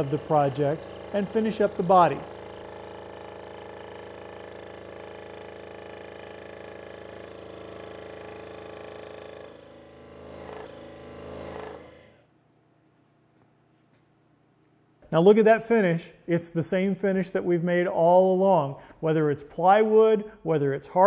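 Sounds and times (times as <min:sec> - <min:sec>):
scroll saw cutting wood: 0:00.0 - 0:12.2.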